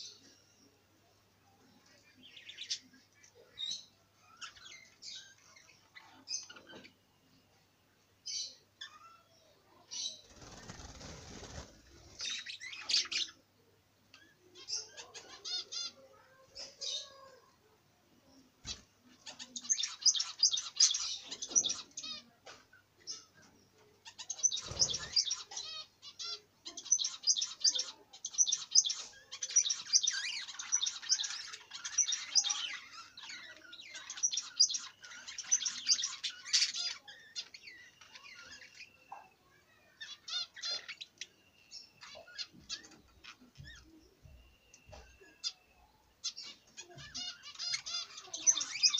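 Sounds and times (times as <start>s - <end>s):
budgerigars chattering: 46.2s - 48.9s.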